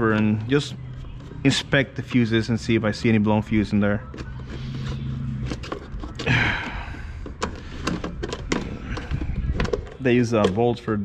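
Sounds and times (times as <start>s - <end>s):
screwdriver scraping plastic: 4.0s - 10.6s.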